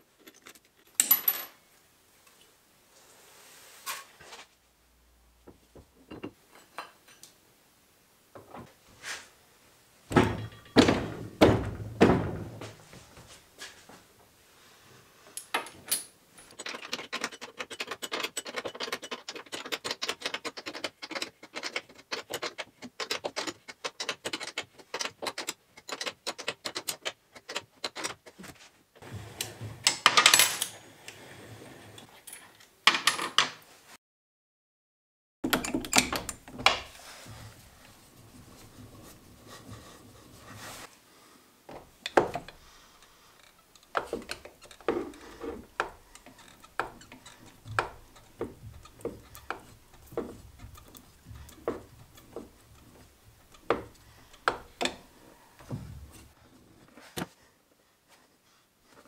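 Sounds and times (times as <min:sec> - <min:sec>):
metal parts clinking and clanking: 0:10.1 - 0:11.1, 0:15.4 - 0:28.2, 0:42.1 - 0:55.2.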